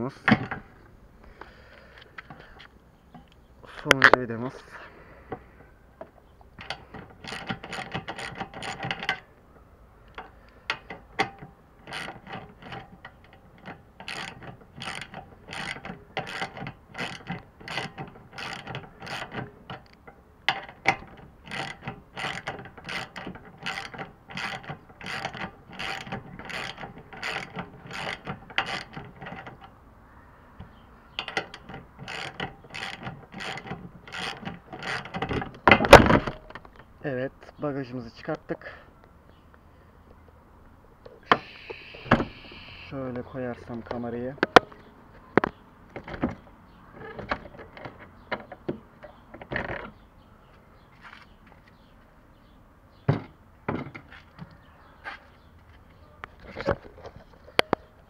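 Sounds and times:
ratchet wrench clicking: 6.6 - 9.2, 10.1 - 29.7, 31.2 - 35.2.

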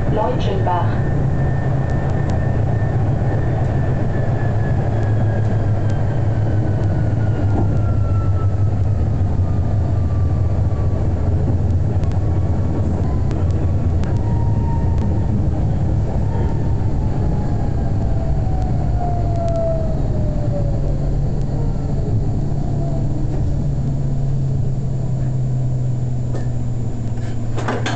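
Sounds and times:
tram hum and rumble: 0.0 - 27.9.

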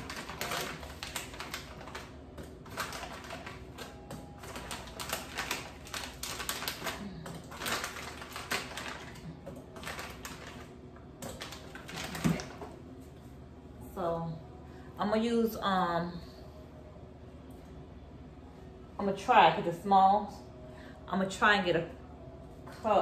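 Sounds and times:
frozen chunks clattering into cup: 0.0 - 12.6
plastic bag crinkling: 0.0 - 12.7.

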